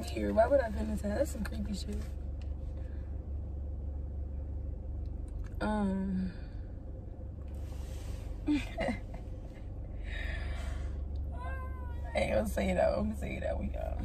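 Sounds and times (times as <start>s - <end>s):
steady low hum: 0.0s - 14.0s
breathy sighs: 10.0s - 11.1s.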